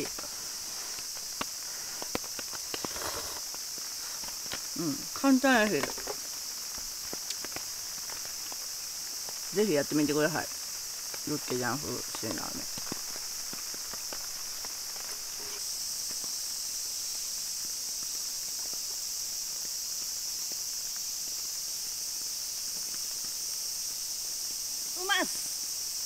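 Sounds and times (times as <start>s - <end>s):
insect chorus drone: 0.0s - 26.0s.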